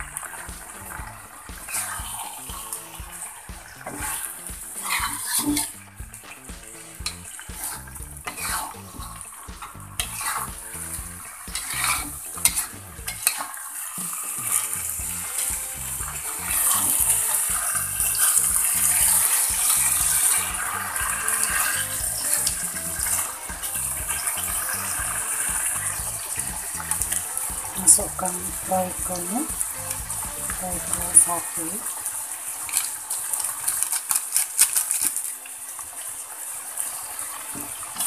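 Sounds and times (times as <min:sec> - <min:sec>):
food sizzling: 0:00.0 - 0:38.0
metal spatula scraping a wok: 0:08.2 - 0:08.8, 0:10.0 - 0:10.5, 0:11.6 - 0:13.4.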